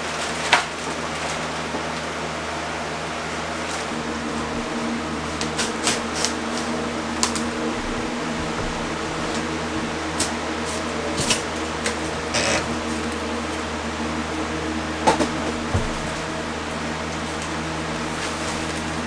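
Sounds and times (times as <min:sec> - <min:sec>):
box fan humming: 0:00.0 - 0:19.0
drywall tearing with crackles: 0:03.8 - 0:13.6.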